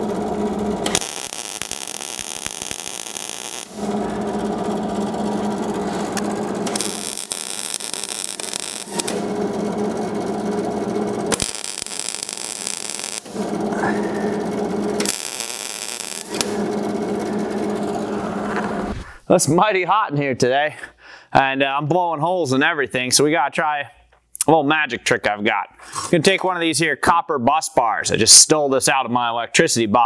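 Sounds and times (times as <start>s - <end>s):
welding arc buzzing and crackling: 0.0s - 19.0s.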